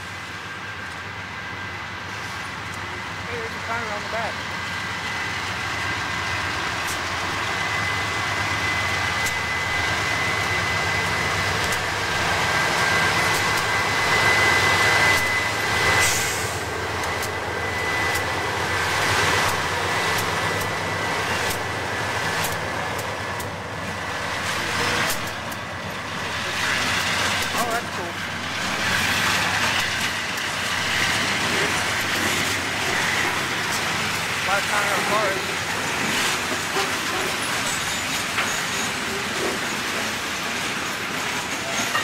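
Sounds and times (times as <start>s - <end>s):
train rumbling past: 0.0s - 42.0s
high-pitched whine: 7.3s - 22.9s
wheels clicking over rails: 24.7s - 25.7s.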